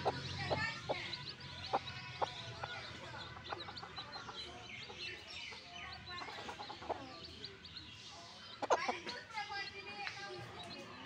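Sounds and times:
hen clucking: 0.0 - 7.6, 8.5 - 9.2
chicks peeping: 0.0 - 11.0.

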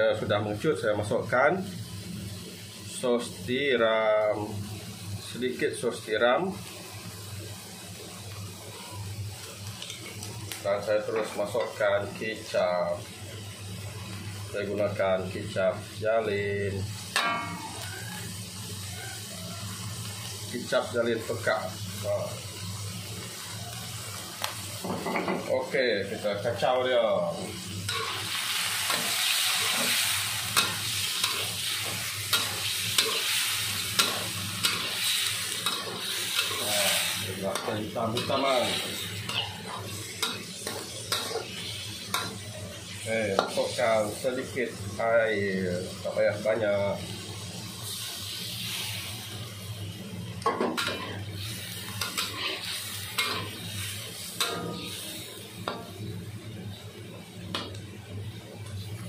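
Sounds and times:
chicken sizzling in hot oil: 0.0 - 59.0
spatula scraping wok: 26.6 - 44.5, 50.6 - 56.0.

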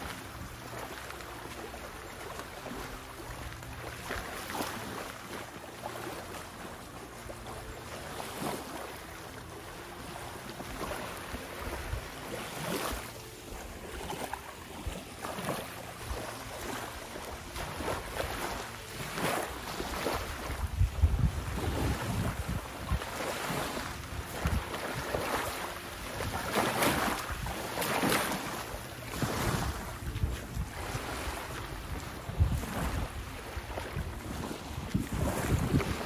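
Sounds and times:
small waves lapping on beach: 0.0 - 36.0
wind buffeting microphone: 19.8 - 25.4, 29.1 - 36.0.

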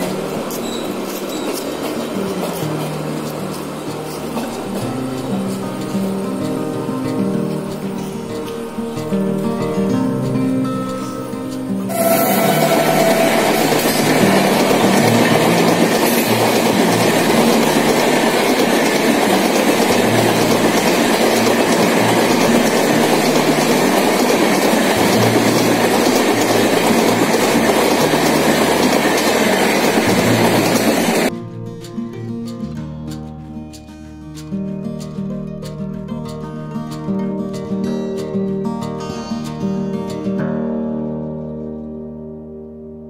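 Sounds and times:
train wheels rushing on rails: 0.0 - 8.6, 11.9 - 31.3.

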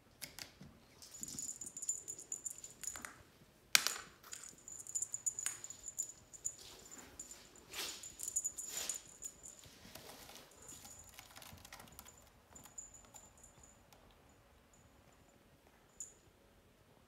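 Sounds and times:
faint high ringing tone: 1.1 - 3.0, 4.4 - 9.8, 11.9 - 17.0
kittens scuffling on blanket: 5.8 - 11.5.

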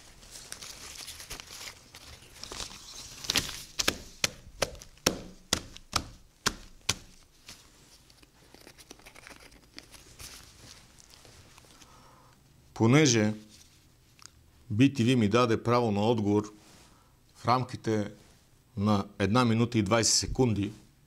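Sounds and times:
paper crinkling and rustling: 0.0 - 11.9.

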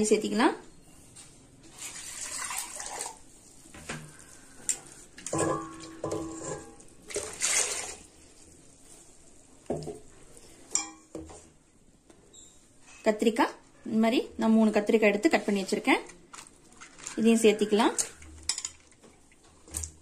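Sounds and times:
water pouring into pot: 1.8 - 3.3, 5.3 - 8.4
steel vessels clinking: 4.2 - 8.0, 10.7 - 11.2.

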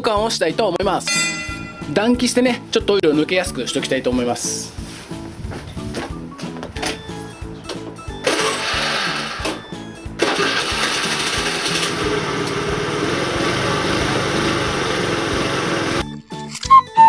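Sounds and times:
background music: 0.0 - 17.0
scooter engine starting and idling: 8.2 - 16.0.

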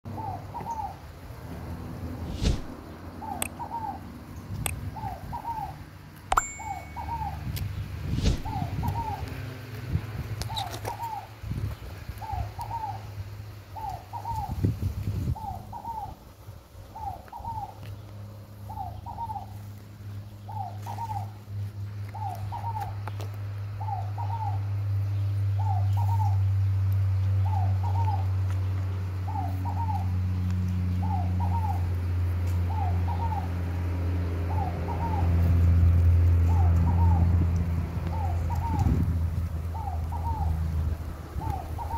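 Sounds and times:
dove singing: 0.1 - 1.1, 2.3 - 41.9
low hum: 1.4 - 3.8.

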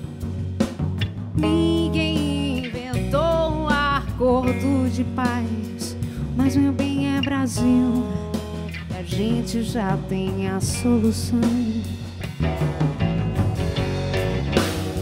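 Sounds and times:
live band playing: 0.0 - 15.0
woman singing: 1.4 - 12.2.

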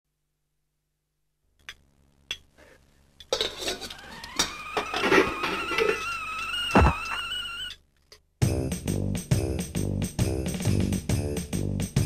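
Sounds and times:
pots and cutlery clinking: 3.2 - 6.1
tone rising in pitch: 4.0 - 7.8.

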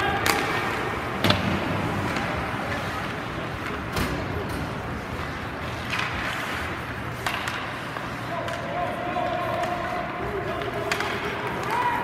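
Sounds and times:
skates on ice: 0.0 - 12.0
sticks and puck clacking: 0.0 - 12.0.

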